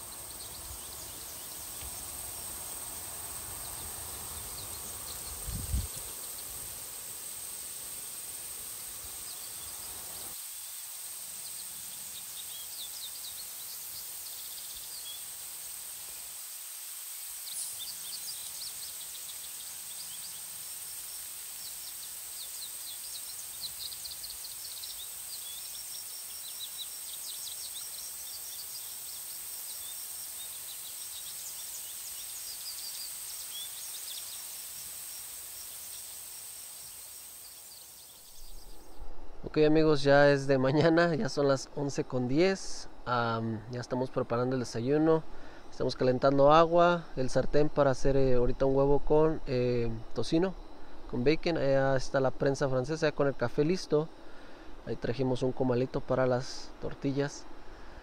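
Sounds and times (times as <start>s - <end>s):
insect drone: 0.0s - 58.0s
bird chirps and trills: 17.4s - 36.2s.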